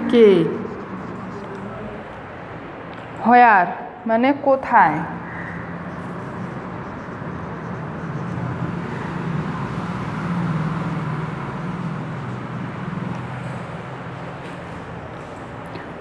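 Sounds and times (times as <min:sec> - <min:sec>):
low motor hum: 0:00.0 - 0:03.9
noisy rush: 0:00.0 - 0:16.0.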